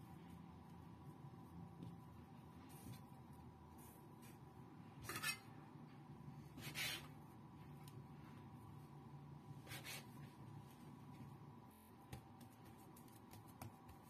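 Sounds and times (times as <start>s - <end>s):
faint steady hum: 0.0s - 14.0s
hands rubbing dough on board: 11.8s - 14.0s.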